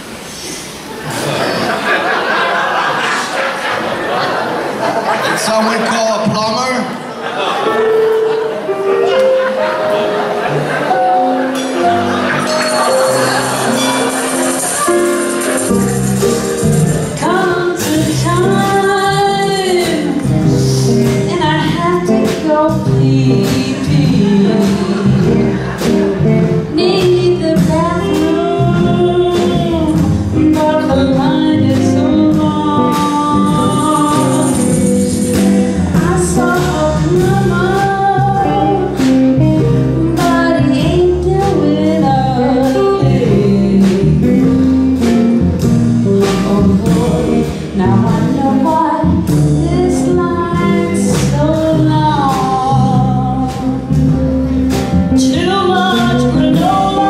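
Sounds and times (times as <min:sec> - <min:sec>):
musical accompaniment with steady beat: 0:07.7 - 0:57.0
group of singers singing: 0:31.5 - 0:38.9.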